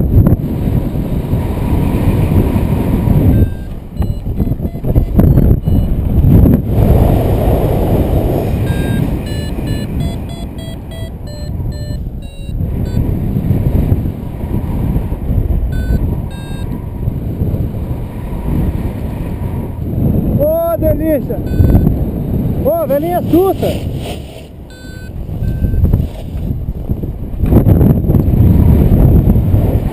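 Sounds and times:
airflow rushing over microphone: 0:00.0 - 0:20.5
variometer beeping: 0:03.2 - 0:06.4, 0:08.6 - 0:13.2, 0:15.7 - 0:16.8, 0:21.4 - 0:22.0, 0:24.7 - 0:25.9.

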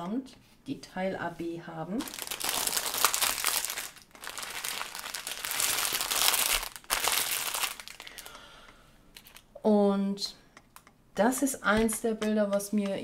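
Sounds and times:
plastic bags crinkling: 0:02.0 - 0:08.5.

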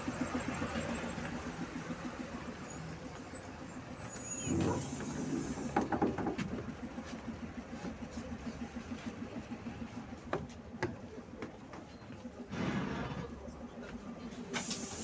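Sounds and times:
bus engine idling: 0:00.0 - 0:15.0
footsteps on bus steps: 0:05.5 - 0:12.4
air hiss: 0:14.5 - 0:15.0.

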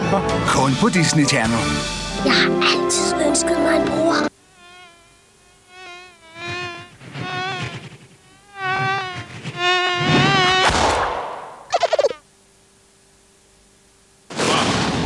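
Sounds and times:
cartoon fly buzzing: 0:02.1 - 0:12.3.

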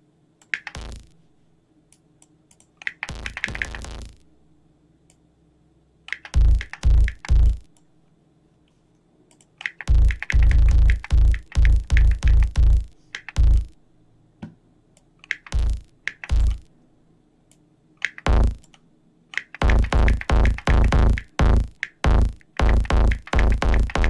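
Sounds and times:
distorted kick drum hits: 0:00.8 - 0:01.1, 0:06.4 - 0:07.7, 0:09.9 - 0:13.7, 0:15.5 - 0:16.6, 0:18.3 - 0:18.6, 0:19.6 - 0:24.0.

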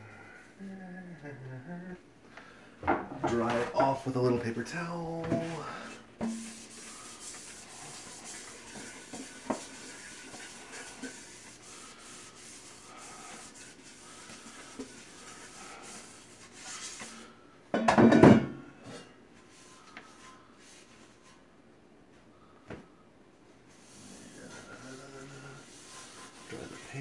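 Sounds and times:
paper towel rubbing a pan: 0:03.3 - 0:17.4, 0:19.4 - 0:21.4, 0:23.7 - 0:27.0.

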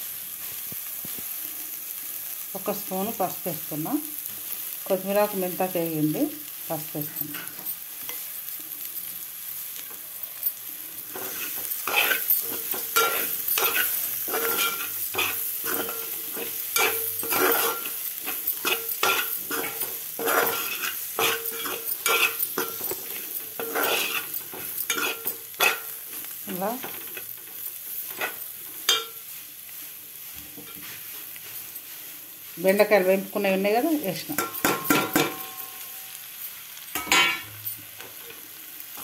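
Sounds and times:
oil sizzling: 0:00.0 - 0:39.0
metal spatula scraping a pot: 0:10.6 - 0:33.0.

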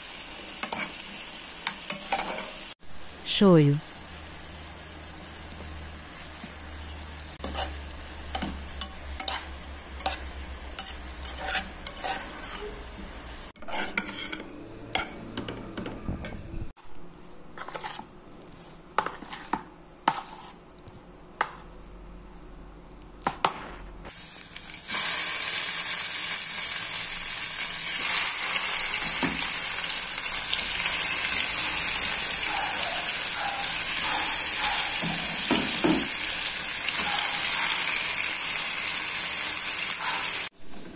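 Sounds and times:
chicken sizzling in hot oil: 0:00.0 - 0:13.8, 0:24.1 - 0:40.6
metal spoon scraping a pan: 0:01.6 - 0:02.6, 0:07.4 - 0:16.4, 0:17.5 - 0:18.1, 0:19.0 - 0:20.6.

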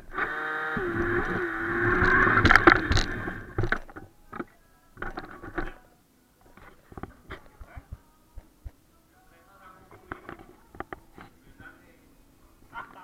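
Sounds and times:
knocks and scrapes of toy car: 0:00.7 - 0:05.8
faint voices: 0:02.0 - 0:13.0.

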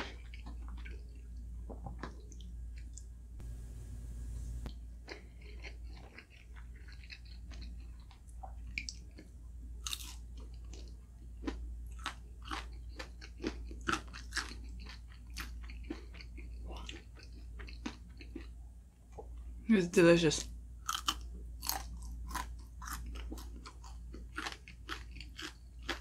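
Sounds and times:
person chewing crunchy food: 0:00.0 - 0:03.0, 0:05.0 - 0:18.6, 0:20.8 - 0:26.0.

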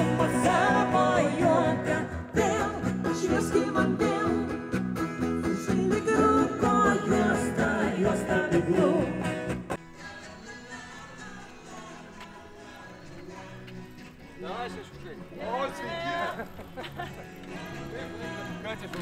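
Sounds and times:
person singing: 0:00.0 - 0:04.6, 0:05.5 - 0:09.4
electric guitar: 0:00.0 - 0:09.8
acoustic guitars: 0:00.0 - 0:19.0.

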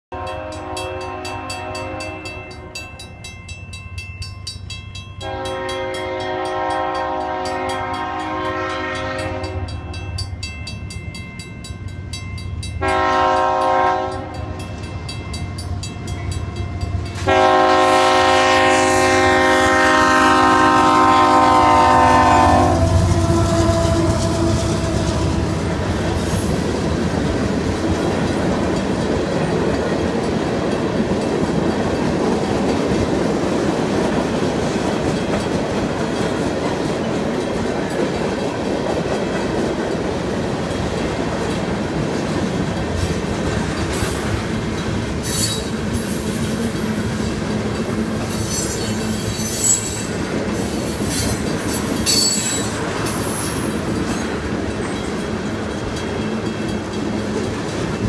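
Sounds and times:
locomotive air horn blasts: 0:00.1 - 0:02.8, 0:05.2 - 0:09.9, 0:12.8 - 0:14.6, 0:17.2 - 0:25.6
train wheels clacking on rails: 0:00.4 - 0:58.0.

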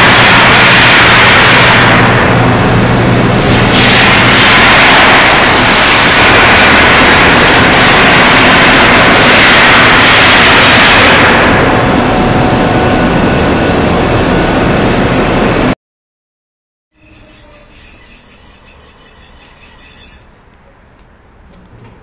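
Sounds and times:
crane high whine: 0:00.0 - 0:15.8, 0:17.0 - 0:22.0
loud mechanical din: 0:00.0 - 0:15.8
low hum: 0:00.0 - 0:15.8.

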